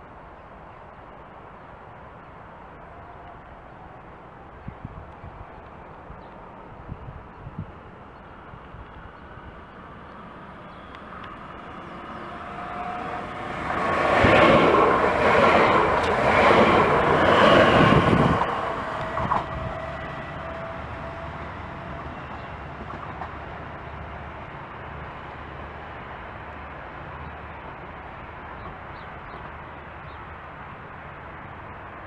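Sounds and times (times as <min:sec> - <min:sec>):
steady train whine: 0:00.0 - 0:32.0
train rushing past: 0:08.3 - 0:32.0.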